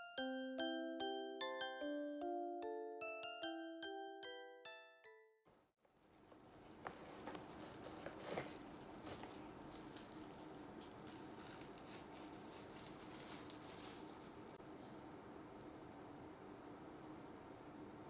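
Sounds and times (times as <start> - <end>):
dog rustling on towels: 6.5 - 14.6.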